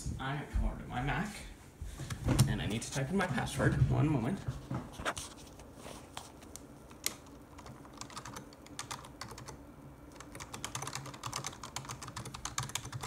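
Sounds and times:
computer keyboard typing: 0:06.9 - 0:13.0.

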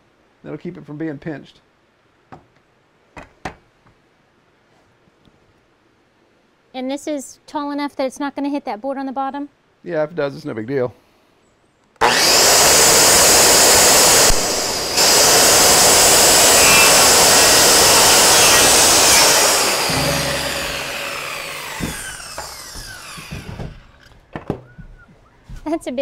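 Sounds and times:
circular saw cutting wood: 0:12.0 - 0:24.0.

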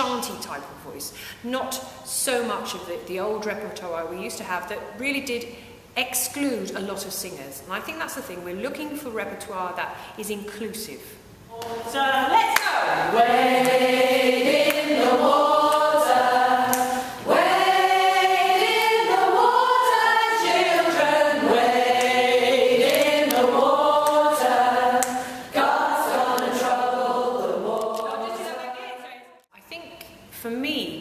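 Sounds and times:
choir singing a cappella: 0:12.8 - 0:29.4.

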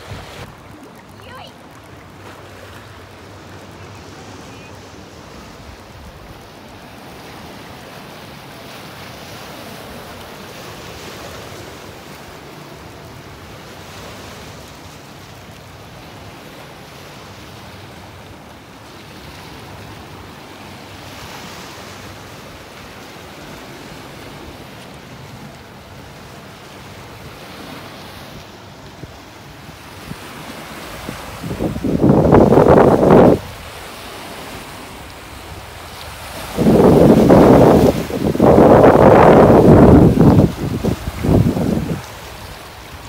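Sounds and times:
waves washing against rocky shore: 0:00.0 - 0:43.0
wind buffeting microphone: 0:28.9 - 0:33.8, 0:35.2 - 0:43.0.

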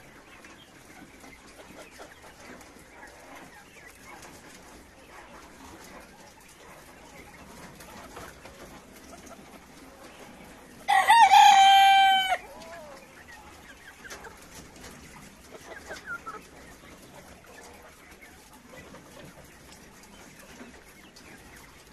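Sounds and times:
faint hen clucks: 0:00.0 - 0:21.9
rooster crowing: 0:10.9 - 0:12.6.

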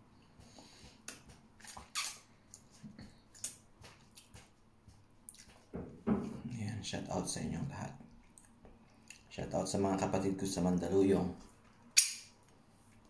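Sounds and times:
chewing: 0:00.5 - 0:05.7, 0:08.1 - 0:09.3
lip smacks and sucks: 0:01.0 - 0:04.5.

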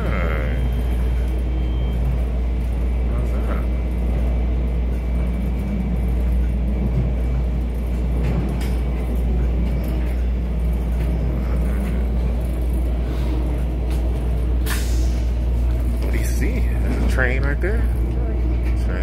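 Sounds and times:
train rumbling inside carriage: 0:00.0 - 0:19.0.

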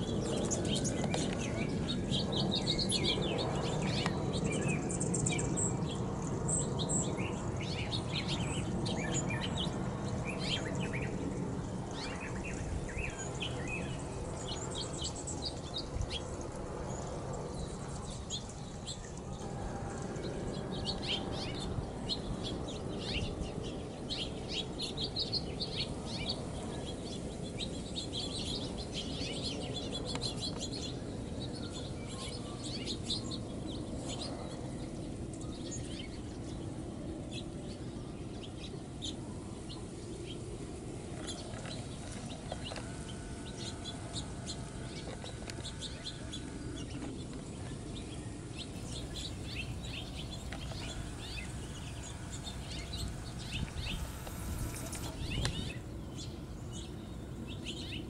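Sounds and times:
songbirds chirping: 0:00.0 - 0:58.0
low background rumble: 0:40.8 - 0:58.0.

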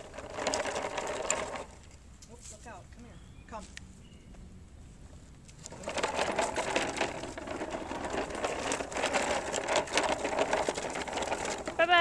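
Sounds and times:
plastic toy wheels rattling: 0:00.0 - 0:02.0, 0:05.6 - 0:12.0.

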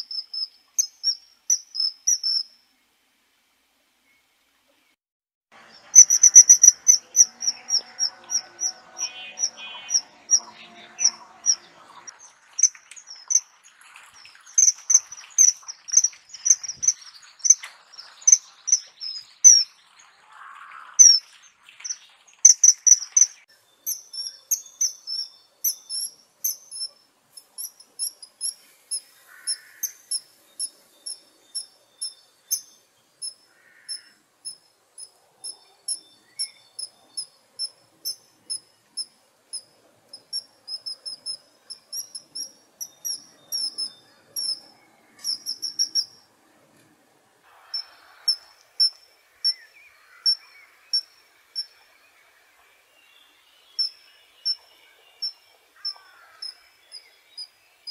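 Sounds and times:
kingfisher piping calls: 0:05.7 - 0:13.6, 0:14.2 - 0:19.7, 0:40.2 - 0:46.1.

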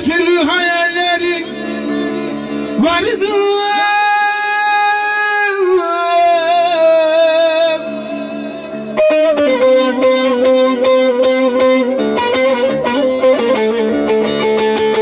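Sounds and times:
man singing a long note: 0:00.0 - 0:11.6.

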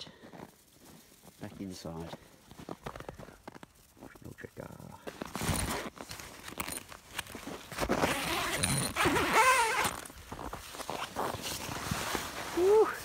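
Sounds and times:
canvas rustling: 0:05.0 - 0:13.0
tent door zipper pulled: 0:05.2 - 0:12.2.

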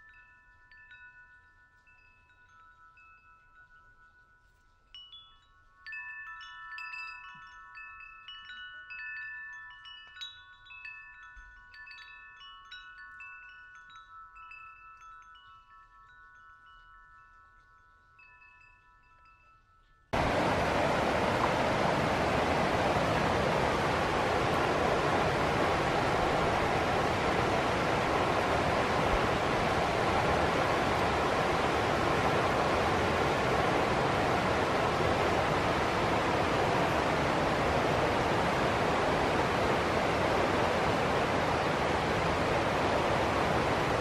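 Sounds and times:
metal wind chime ringing: 0:00.0 - 0:20.2
stream rapids rushing: 0:20.2 - 0:44.0.

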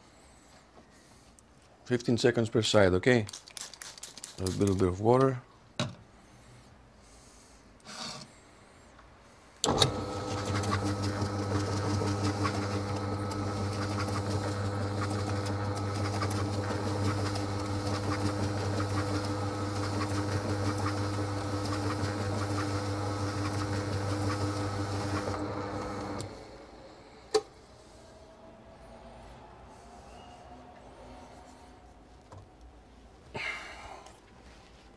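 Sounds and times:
electric motor hum: 0:09.7 - 0:26.9.

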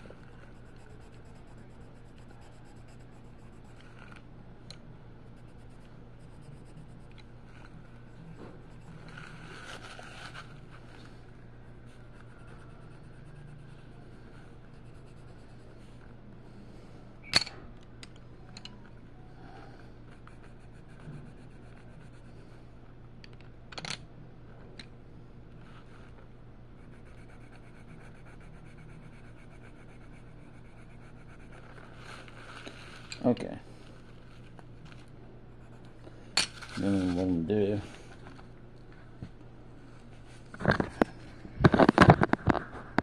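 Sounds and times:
pencil scratching on paper: 0:00.0 - 0:04.2, 0:05.3 - 0:10.4, 0:12.1 - 0:15.6, 0:20.1 - 0:22.4, 0:26.8 - 0:32.4
steady low hum: 0:00.0 - 0:43.0.

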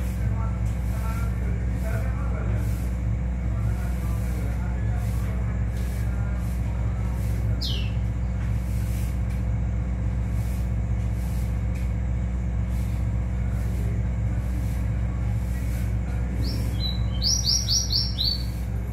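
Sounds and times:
bird whistling notes: 0:07.6 - 0:08.0, 0:16.4 - 0:18.6.

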